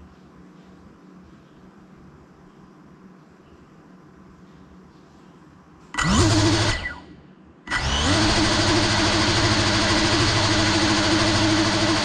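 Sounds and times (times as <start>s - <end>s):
drone motors whining: 6.0s - 7.1s, 7.7s - 12.0s.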